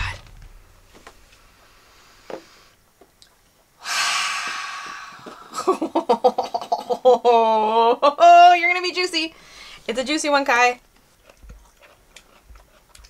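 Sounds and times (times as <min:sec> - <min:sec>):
woman sniffing: 0:03.8 - 0:05.4
woman breathing in loudly: 0:03.8 - 0:05.6.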